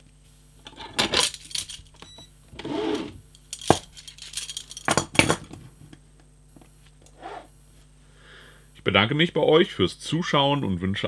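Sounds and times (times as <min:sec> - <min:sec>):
handcuffs clinking and rattling: 0:01.0 - 0:02.1, 0:03.3 - 0:05.4.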